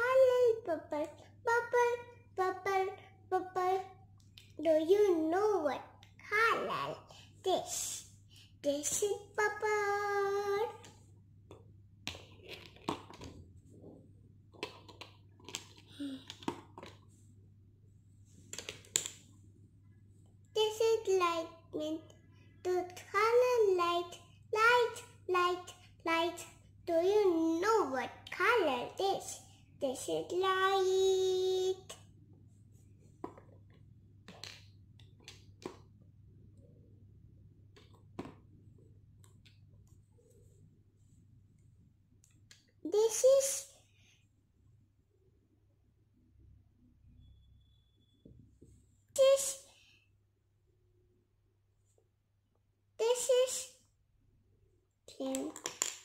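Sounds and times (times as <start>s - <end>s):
low steady hum: 0.0s - 42.8s.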